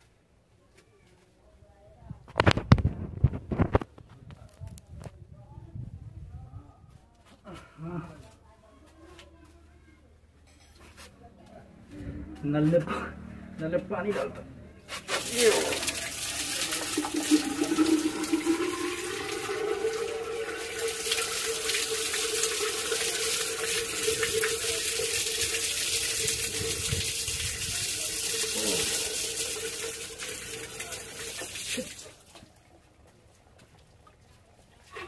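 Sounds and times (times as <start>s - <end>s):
water pouring from bucket: 15.0s - 32.5s.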